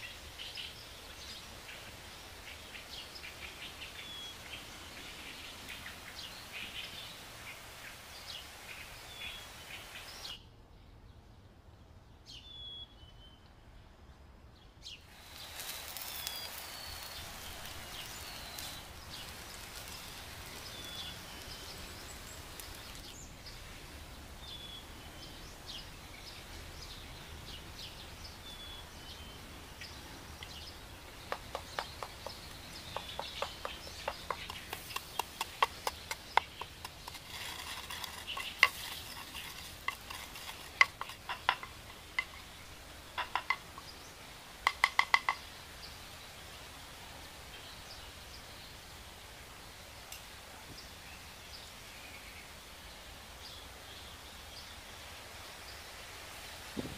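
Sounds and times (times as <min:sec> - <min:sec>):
steady low hiss: 0:00.0 - 0:56.9
birds chirping: 0:14.6 - 0:46.1
pestle knocking in a bowl: 0:31.3 - 0:42.4.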